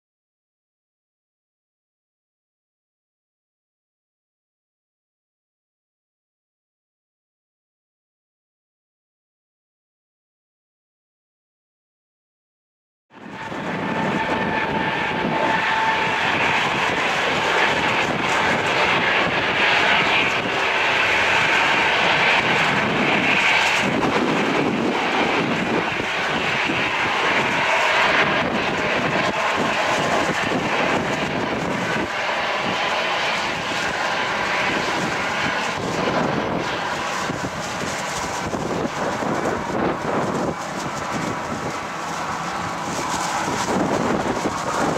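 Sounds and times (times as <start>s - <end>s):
jet engine roar: 13.1s - 44.9s
thin jet whine: 13.1s - 44.9s.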